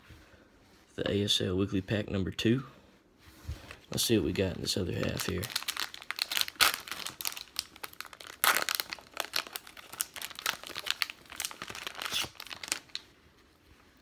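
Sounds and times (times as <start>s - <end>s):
card pack wrapper crinkling and tearing: 4.6s - 13.1s.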